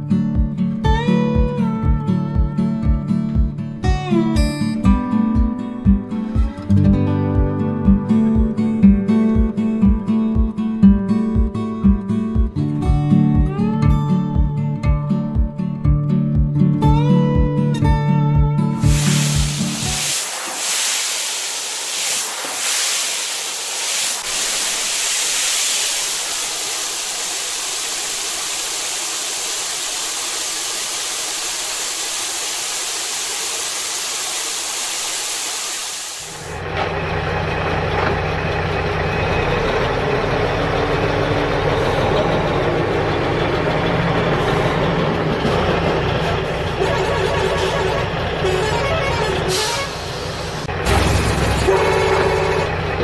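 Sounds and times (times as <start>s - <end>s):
steady hiss: 18.8s - 36.6s
truck engine low hum: 36.3s - 53.0s.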